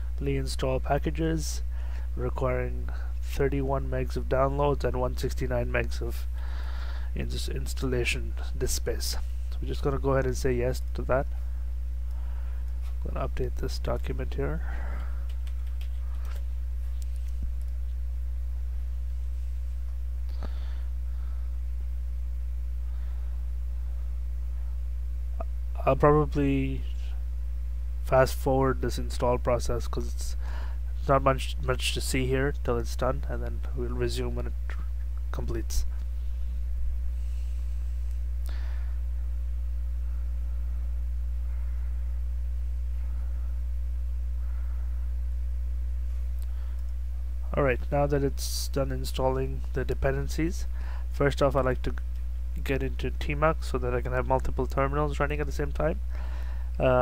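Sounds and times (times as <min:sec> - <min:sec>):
electrical mains hum: 0:00.0 - 0:57.0
faint clicks: 0:15.2 - 0:16.4.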